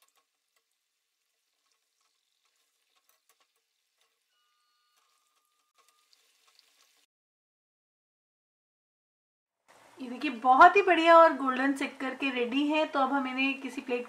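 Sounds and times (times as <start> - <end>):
faint sizzling in hot oil: 0.0 - 7.1.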